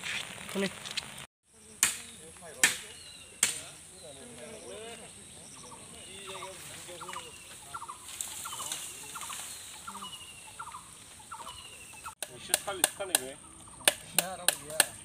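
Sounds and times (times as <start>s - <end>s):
birds calling: 0.5s - 15.0s
machete chopping bamboo: 1.8s - 3.6s, 12.2s - 15.0s.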